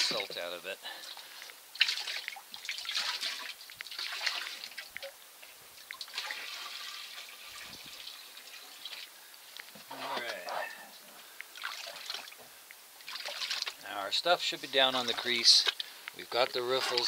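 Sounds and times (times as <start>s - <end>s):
water sloshing in a pan: 0.0s - 9.2s, 11.5s - 17.0s
water splash: 1.7s - 5.1s, 5.8s - 7.8s, 11.6s - 12.4s, 13.0s - 13.8s.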